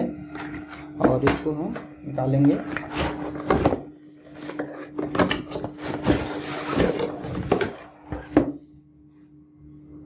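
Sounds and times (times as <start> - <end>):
cardboard scraping and rustling: 2.5 - 8.6.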